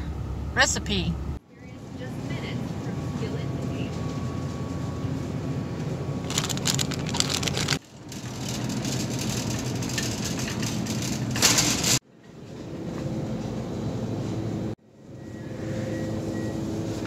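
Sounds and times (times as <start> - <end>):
shopping cart rattling: 6.3 - 12.0.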